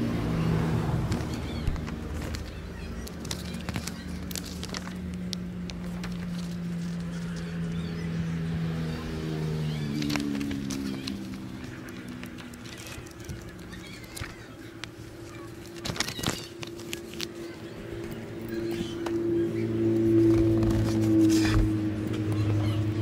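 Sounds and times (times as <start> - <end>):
paper pages rustling: 1.0 - 7.8, 9.9 - 19.2, 19.9 - 22.3.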